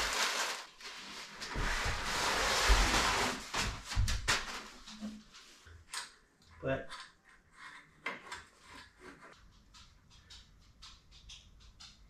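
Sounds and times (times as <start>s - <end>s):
paper and cardboard rustling: 0.0s - 5.6s.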